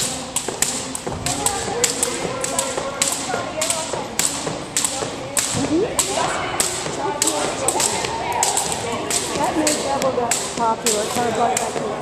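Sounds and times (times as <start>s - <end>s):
jump ropes slapping wooden floor: 0.0s - 12.0s.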